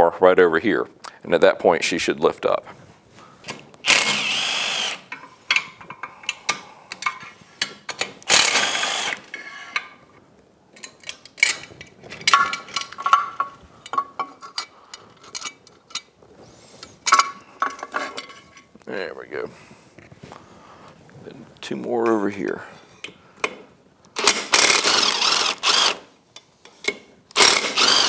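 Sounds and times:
cordless drill spinning bolts: 3.5s - 5.1s, 8.2s - 9.3s, 24.2s - 26.1s, 27.3s - 28.0s
clinks of metal parts handled: 10.7s - 16.1s, 17.0s - 18.7s.

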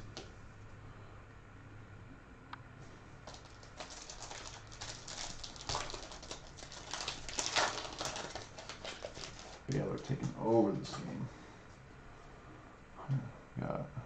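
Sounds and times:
foil wrappers crinkling: 3.2s - 10.4s
cards rustling: 3.2s - 11.1s.

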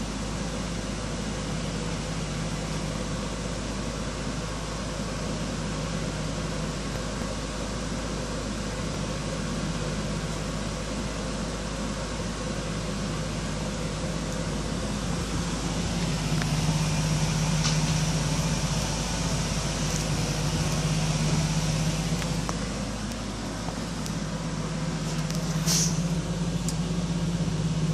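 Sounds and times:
low mechanical hum: 0.0s - 27.9s
short hiss: 25.2s - 26.1s.

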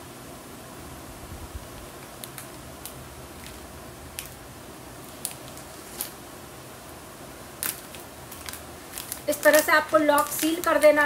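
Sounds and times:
faint steady hiss: 0.0s - 11.0s
plastic packet crinkling: 2.0s - 4.4s, 5.0s - 6.2s, 7.6s - 11.0s.

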